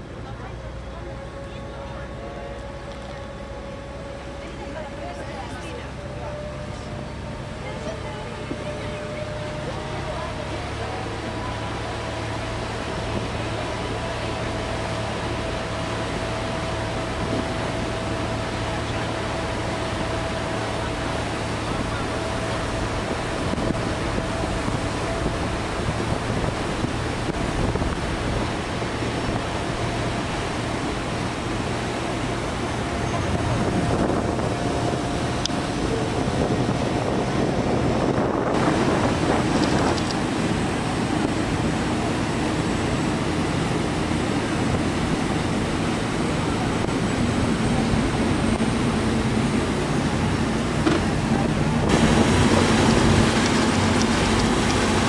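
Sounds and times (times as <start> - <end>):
churning wake water: 0.0 - 55.0
ship engine hum: 0.0 - 55.0
wind on microphone: 19.6 - 55.0.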